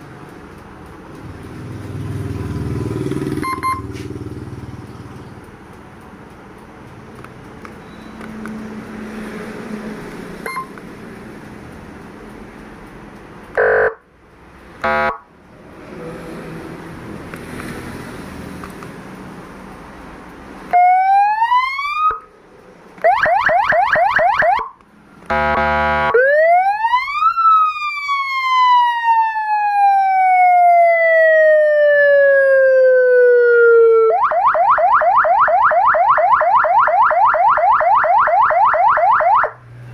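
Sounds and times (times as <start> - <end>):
electronic siren: 13.6 - 14.0, 14.8 - 15.3, 20.7 - 22.3, 23.0 - 39.6
buzzy horn blasts: 14.8 - 15.2, 25.3 - 26.2.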